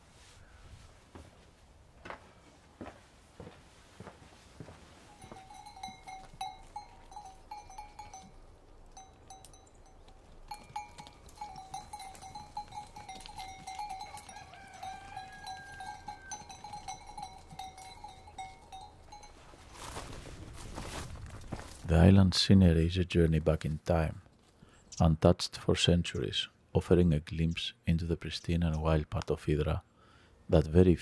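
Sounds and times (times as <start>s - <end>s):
sheep bells clanking: 5.1s - 20.1s.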